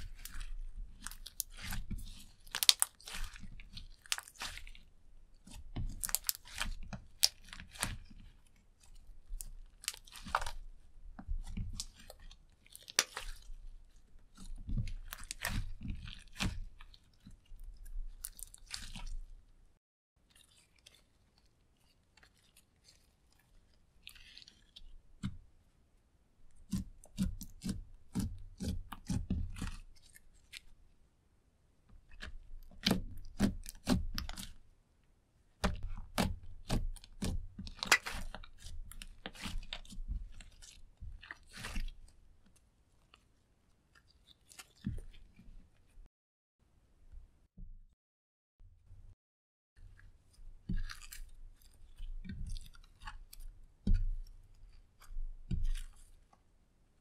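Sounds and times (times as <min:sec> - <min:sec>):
slime crackling and popping: 0:00.0 - 0:10.6, 0:11.5 - 0:17.3, 0:18.1 - 0:19.1, 0:35.8 - 0:41.8.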